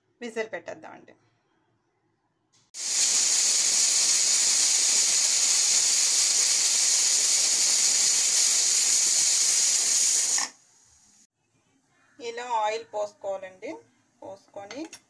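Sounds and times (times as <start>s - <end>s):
pressure cooker hissing steam: 2.8s - 11.3s.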